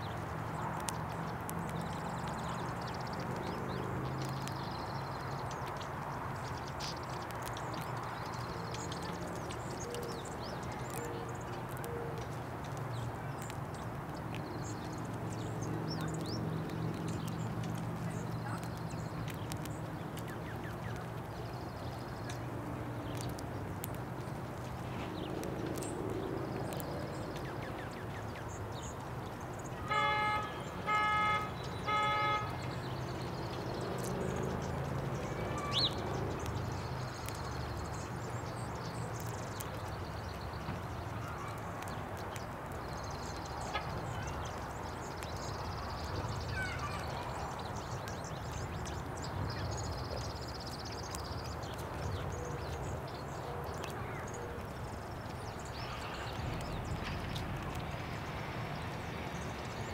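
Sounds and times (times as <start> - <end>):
bird chirps: 29.6 - 34.1
car horn honks: 29.9 - 32.6.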